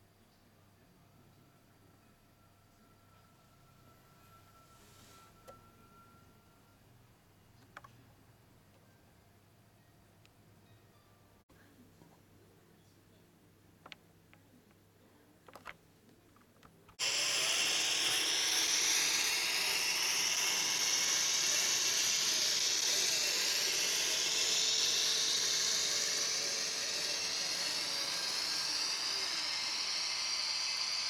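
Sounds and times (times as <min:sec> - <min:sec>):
model train running on track: 0:17.0 - 0:31.0.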